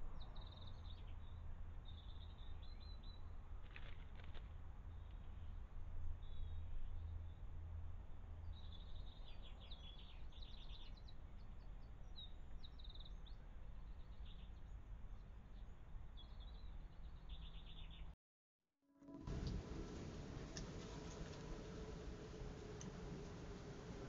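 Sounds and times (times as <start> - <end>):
songbirds trilling and chirping: 8.4 - 18.1
microphone hiss: 19.0 - 24.0.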